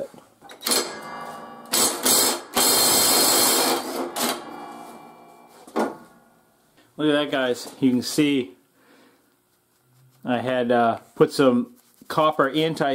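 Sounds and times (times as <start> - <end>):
impact wrench hammering on bolt: 0.6 - 4.7.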